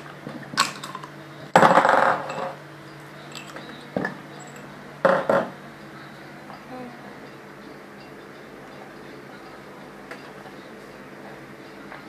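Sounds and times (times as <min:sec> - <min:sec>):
metal tools clinking on metal: 0:02.2 - 0:02.6, 0:03.2 - 0:04.8.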